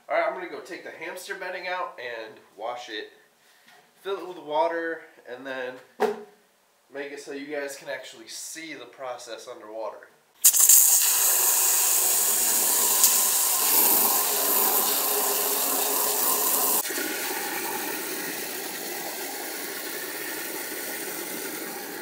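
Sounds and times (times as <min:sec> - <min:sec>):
hose spray splattering glass: 0:10.4 - 0:14.0
water running into tank: 0:10.4 - 0:22.0.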